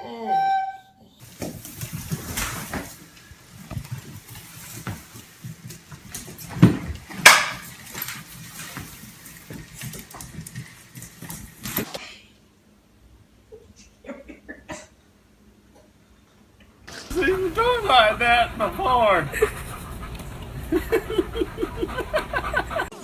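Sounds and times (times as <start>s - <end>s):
broom scuffling and knocking: 1.3s - 10.6s.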